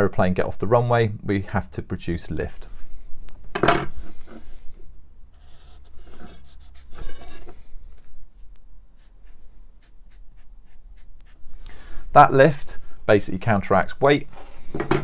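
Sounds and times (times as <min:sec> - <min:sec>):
marker scratching on paper: 0:05.4 - 0:07.5, 0:09.0 - 0:11.6.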